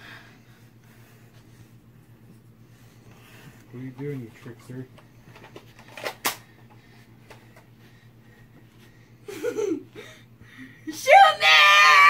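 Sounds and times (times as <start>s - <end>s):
child giggling: 9.3s - 10.1s.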